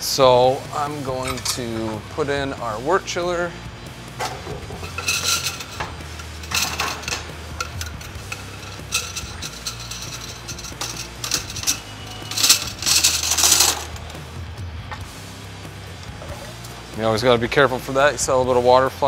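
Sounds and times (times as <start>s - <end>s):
metal chiller clanking on kettle: 4.2s - 14.2s.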